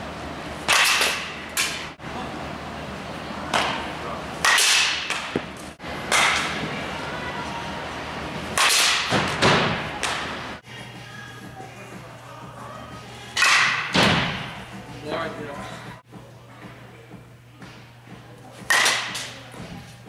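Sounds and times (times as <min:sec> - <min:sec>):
bat striking ball crack: 0:00.6 - 0:01.8, 0:08.6 - 0:10.3.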